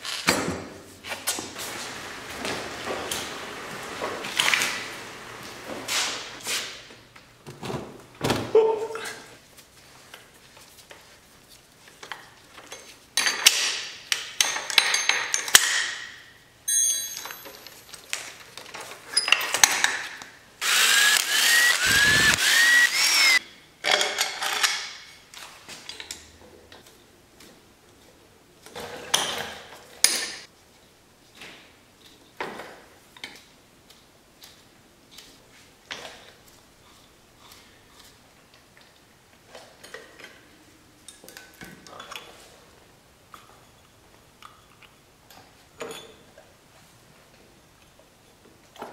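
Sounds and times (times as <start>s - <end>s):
metal tool clatter: 16.7s - 18.0s
power tool whining: 20.6s - 23.4s.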